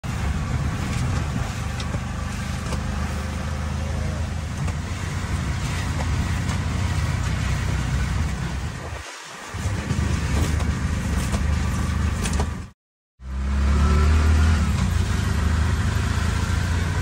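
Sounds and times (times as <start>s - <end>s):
heavy rain on wet road: 0.0s - 12.7s
auto-rickshaw engine running: 0.0s - 17.0s.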